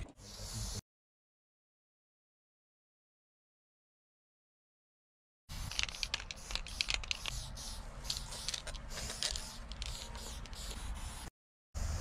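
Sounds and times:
spray paint can hissing: 0:05.5 - 0:11.3.

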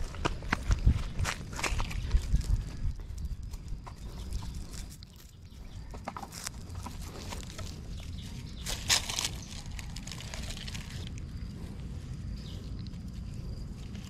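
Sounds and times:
rustling on dry leaves: 0:06.2 - 0:14.0.

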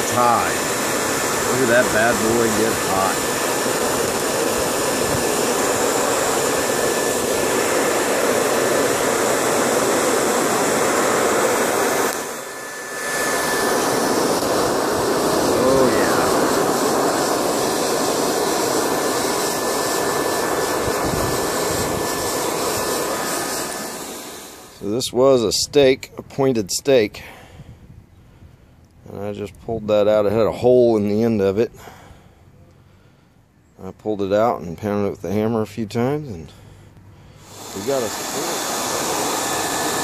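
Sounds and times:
hair dryer blowing air: 0:00.0 - 0:25.0, 0:37.4 - 0:40.0.

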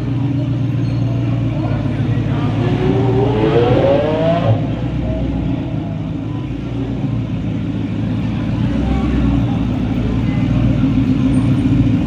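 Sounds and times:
low engine rumble: 0:00.0 - 0:12.0
car engine revving: 0:01.2 - 0:06.2.

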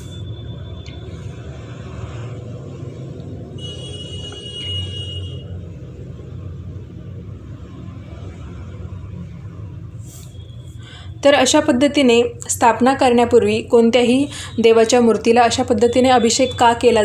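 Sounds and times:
high ringing tone: 0:00.0 - 0:00.8, 0:03.6 - 0:05.5.

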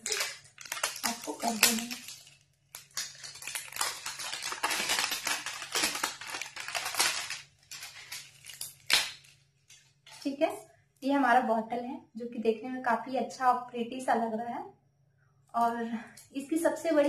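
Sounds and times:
plastic film crinkling: 0:00.0 - 0:10.3.

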